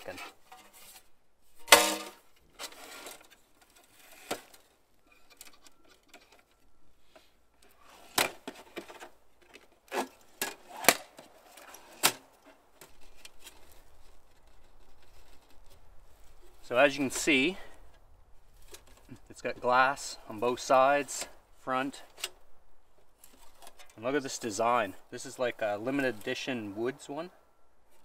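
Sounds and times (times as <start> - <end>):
rustling handling: 0.0 - 17.2, 22.1 - 24.0.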